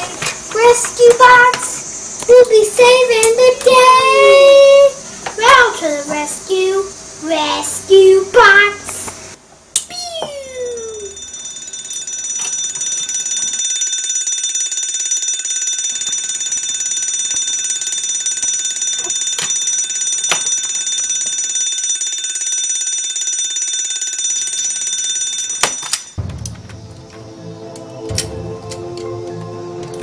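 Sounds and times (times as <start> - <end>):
fire alarm bell ringing: 10.5 - 26.5.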